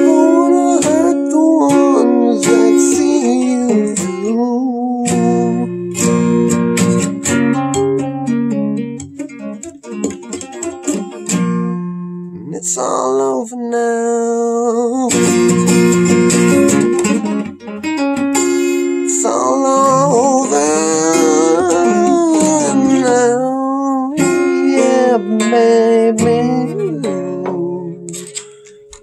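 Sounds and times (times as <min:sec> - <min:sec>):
acoustic guitar strumming and picking: 0:00.0 - 0:29.0.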